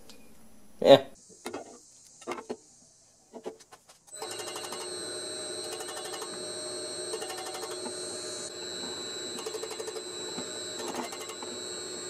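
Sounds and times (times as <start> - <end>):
drill press whining: 4.1 - 12.0.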